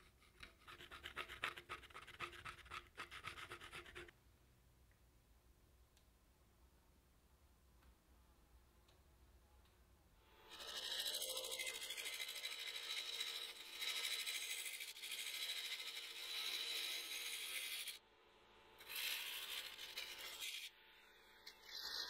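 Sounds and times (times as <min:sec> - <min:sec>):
gouge scraping wood on lathe: 0:10.5 - 0:18.0.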